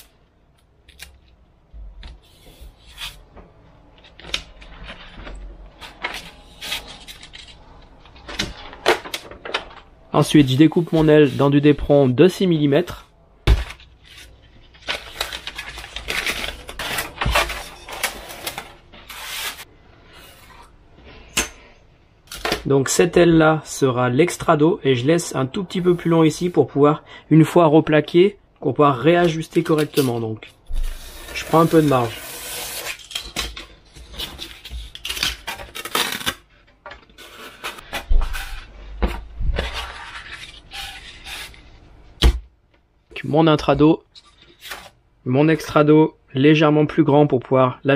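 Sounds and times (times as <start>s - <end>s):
foam sheets rustling and scraping: 14.0s - 20.5s.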